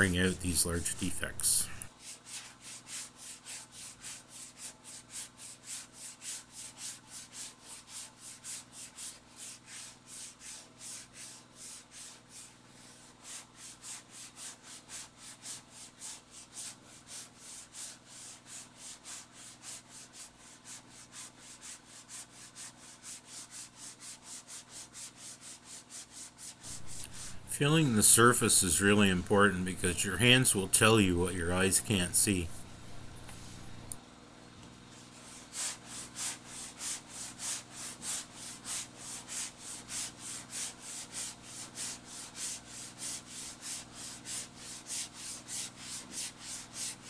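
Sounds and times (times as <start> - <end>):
sandpaper rasping on hard surface: 1.9 - 27.4, 35.0 - 47.0.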